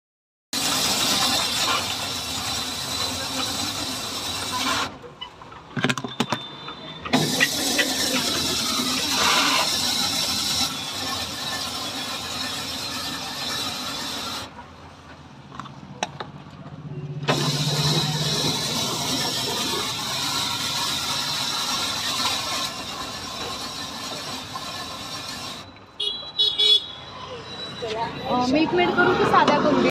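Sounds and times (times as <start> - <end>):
ice-shaving machine scraping: 0.6 - 5.0, 7.1 - 14.6, 17.3 - 25.7.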